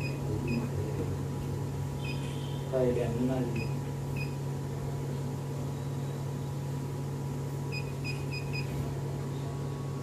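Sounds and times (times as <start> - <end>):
high touchscreen beeps: 0.0 - 0.7, 3.5 - 4.4, 7.7 - 8.8
laser unit humming: 0.0 - 10.0.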